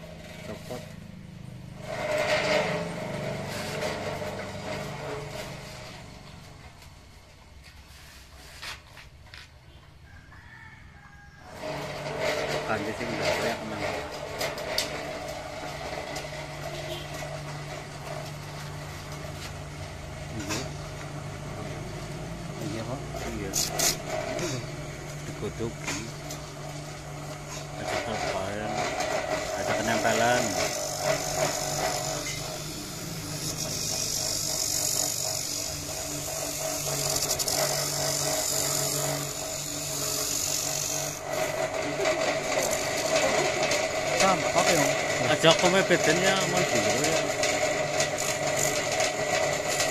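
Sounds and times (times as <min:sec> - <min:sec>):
electric motor humming: 0:11.5 - 0:49.9
grater rasping coconut: 0:22.2 - 0:26.4, 0:27.1 - 0:49.9.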